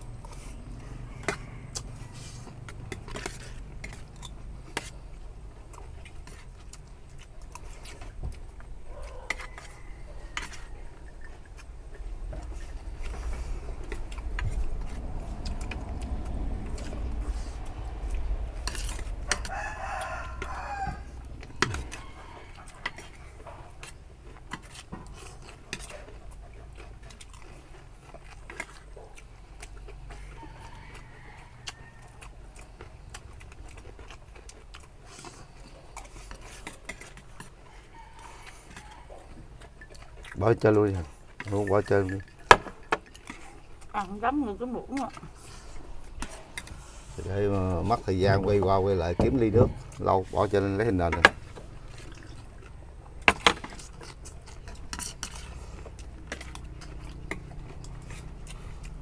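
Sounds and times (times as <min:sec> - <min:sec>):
rooster crowing: 0:00.7 - 0:02.6, 0:08.9 - 0:11.2, 0:19.2 - 0:23.4, 0:30.1 - 0:32.4, 0:37.6 - 0:39.3.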